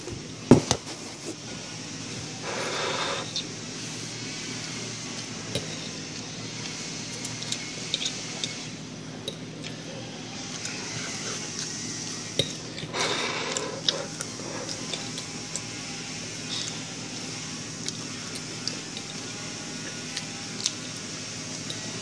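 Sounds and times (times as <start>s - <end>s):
low background hum: 0.0s - 22.0s
fork scraping against plate: 7.2s - 8.7s, 10.6s - 15.8s.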